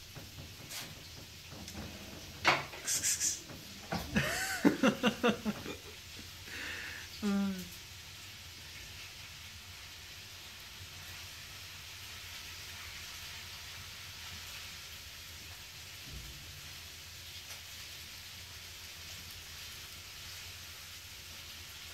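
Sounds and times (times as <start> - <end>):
steady hiss: 0.0 - 21.9.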